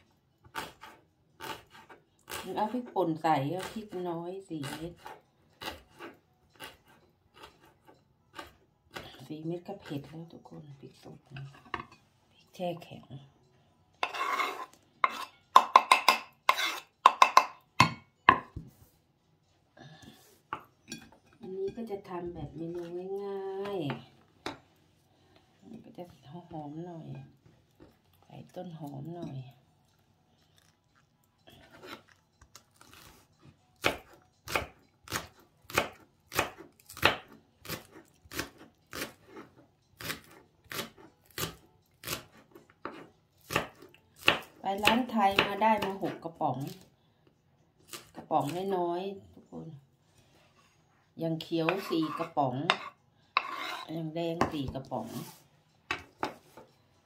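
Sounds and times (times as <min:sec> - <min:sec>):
knife scraping on wooden board: 0:00.4 - 0:02.8, 0:04.6 - 0:09.2, 0:14.0 - 0:17.5, 0:31.5 - 0:44.5, 0:51.6 - 0:56.7
knife chopping on wooden board: 0:33.8 - 0:46.8.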